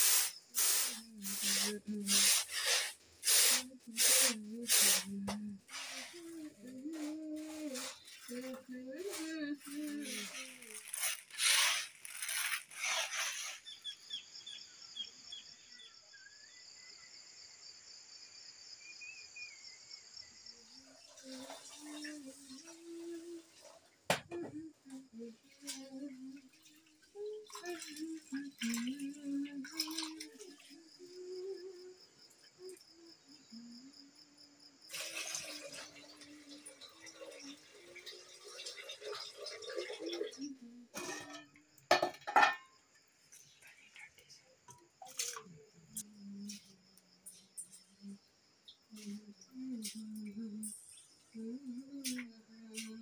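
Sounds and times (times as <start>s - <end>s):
loud hissing noise: 0.0s - 6.2s
high insect buzz: 0.0s - 20.8s
cricket trill: 0.0s - 53.0s
water pouring into a metal bucket: 9.5s - 13.6s, 26.4s - 30.7s, 34.9s - 41.4s.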